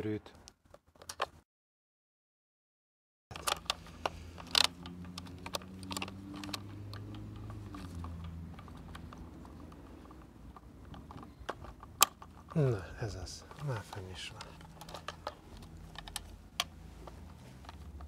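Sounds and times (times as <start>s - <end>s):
plastic clicks and taps: 3.3s - 12.6s, 13.5s - 18.0s.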